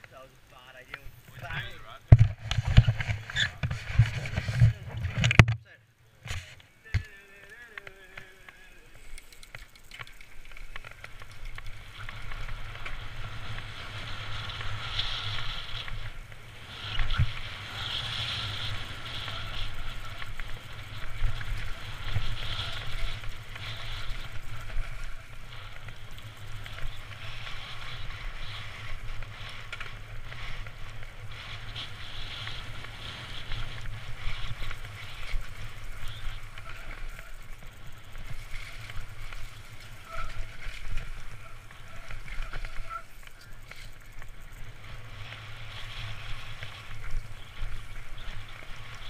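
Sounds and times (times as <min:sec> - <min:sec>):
bike knocking and rattling: 0:00.0 - 0:49.0
bike tyres on dirt trail: 0:00.0 - 0:49.0
wind rumble on microphone: 0:10.4 - 0:49.0.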